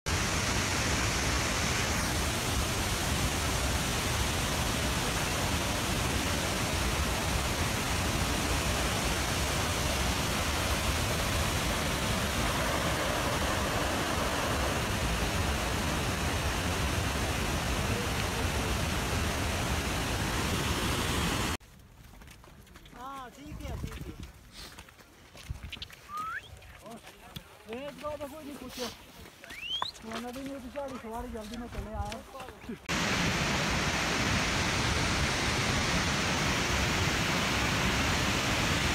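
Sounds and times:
stream rushing over boulders: 0:00.1 - 0:21.6, 0:32.8 - 0:38.9.

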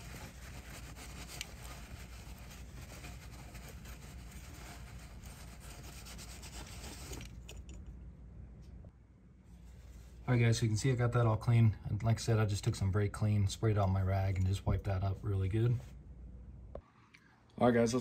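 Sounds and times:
rag rubbing on metal: 0:00.0 - 0:07.3.

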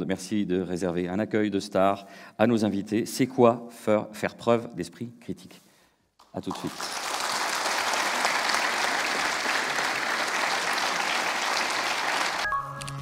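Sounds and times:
audience applauding: 0:06.3 - 0:12.5.

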